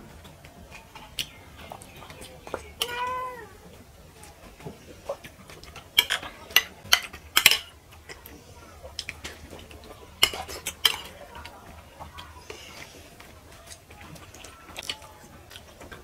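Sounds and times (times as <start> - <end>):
metal spoons clinking on plates: 6.0 - 7.7, 10.2 - 11.5.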